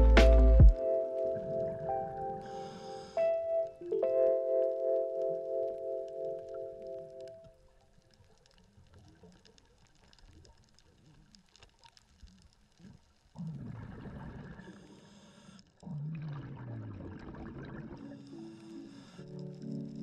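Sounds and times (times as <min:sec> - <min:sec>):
faint crackling clicks: 0:00.8 - 0:16.0, 0:17.6 - 0:20.0
regulator inhale hiss: 0:02.4 - 0:03.5, 0:14.6 - 0:15.7, 0:18.1 - 0:19.5
exhaled bubbles gurgling: 0:12.7 - 0:15.1, 0:15.8 - 0:19.0.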